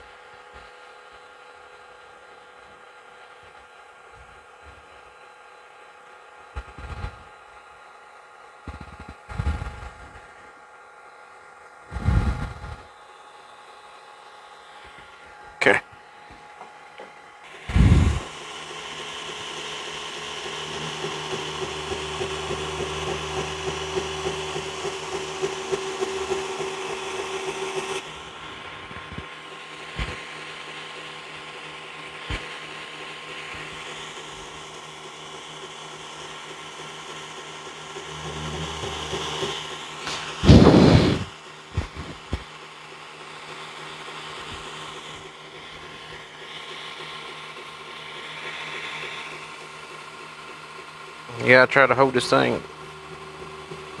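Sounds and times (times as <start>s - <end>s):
belt grinder running: 17.4s - 54.0s.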